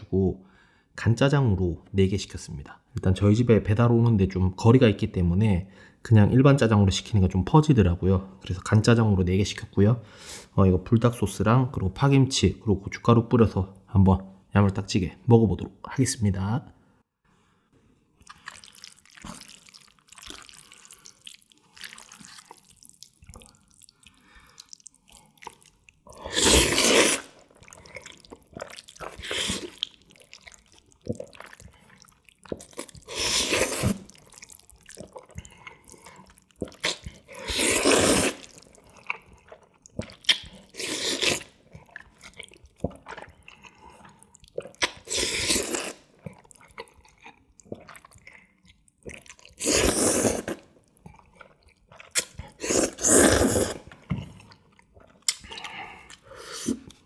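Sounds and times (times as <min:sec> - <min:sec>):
wet noodle slurps: 0:18.2 - 0:46.9, 0:49.1 - 0:54.6.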